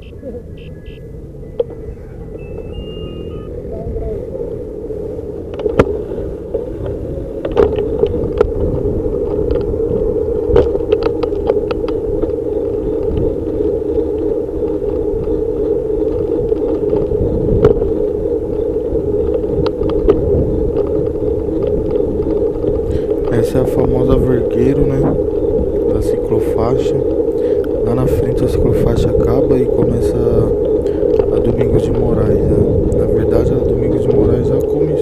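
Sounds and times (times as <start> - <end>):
street traffic: 0.0 - 10.1
bike rattling over bumps: 0.0 - 35.0
bike tyres rolling on road: 0.0 - 35.0.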